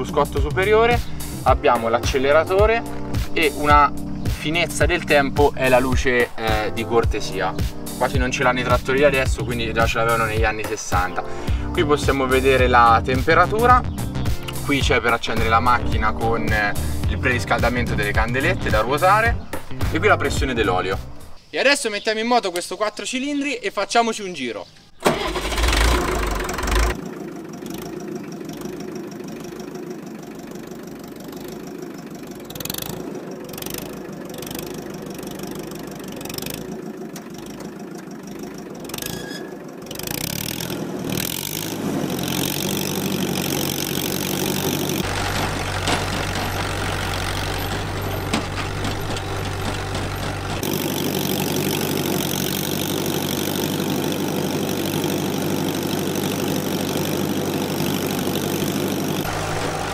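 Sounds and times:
tractor engine starting and idling: 0.0s - 19.2s, 25.0s - 59.9s.

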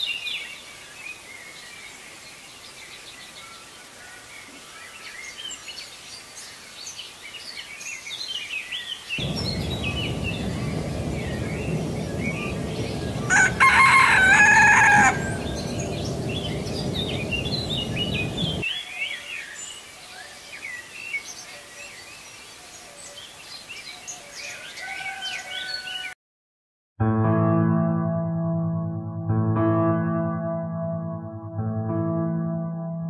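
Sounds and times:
small birds chirping: 4.4s - 24.6s
rooster crowing: 9.2s - 18.6s, 24.4s - 26.2s
steady background noise: 9.2s - 18.6s.

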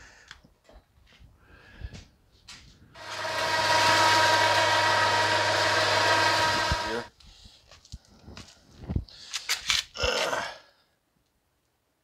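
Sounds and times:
motor humming and buzzing: 3.0s - 7.1s.

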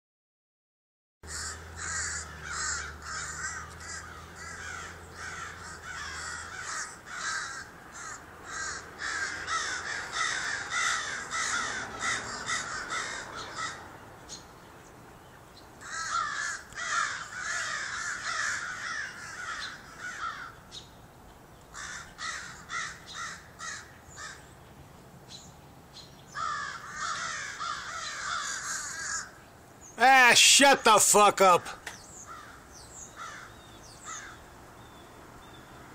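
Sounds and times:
crows cawing: 1.3s - 13.9s, 15.8s - 20.6s, 21.7s - 24.5s, 26.3s - 29.4s, 31.4s - 34.5s.

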